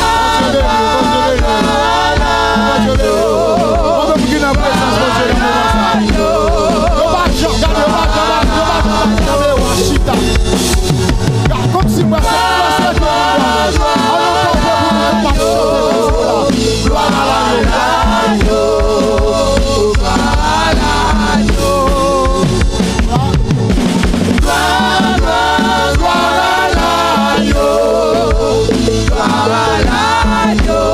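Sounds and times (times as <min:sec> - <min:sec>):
band accompaniment: 0:00.0 - 0:30.9
voices singing gospel: 0:00.0 - 0:30.9.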